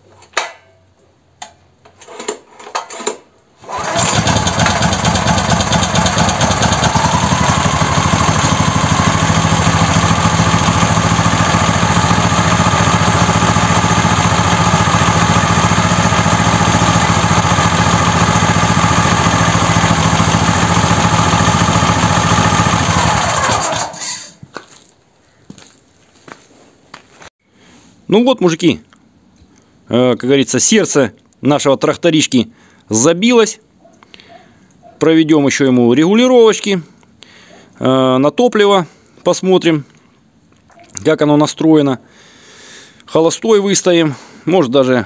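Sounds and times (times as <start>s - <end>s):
petrol engine running: 3.6s - 24.2s
recoil starter rope pulls: 3.6s - 24.4s.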